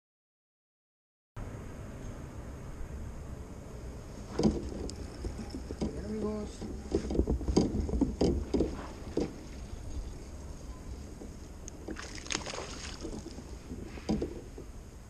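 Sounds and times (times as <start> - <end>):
water noise: 1.4 - 15.0
wind noise on microphone: 4.2 - 15.0
fishing gear knocking on kayak: 4.3 - 9.4.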